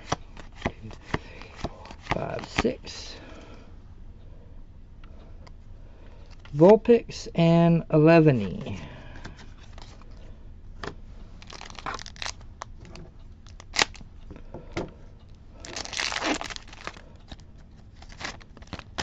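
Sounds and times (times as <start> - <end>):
cards clicking and rustling: 0.0 - 3.2, 11.4 - 14.1, 15.7 - 19.0
foil wrapper crinkling: 11.4 - 12.4, 13.4 - 14.0, 15.6 - 19.0
foil wrapper ripping: 11.4 - 12.4, 13.5 - 14.0, 15.6 - 19.0.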